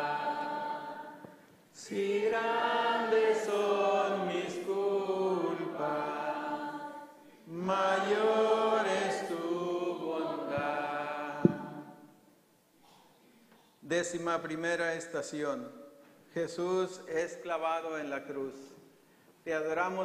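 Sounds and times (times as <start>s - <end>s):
congregation singing a hymn: 0.0s - 12.3s
sharp knock: 11.4s - 11.8s.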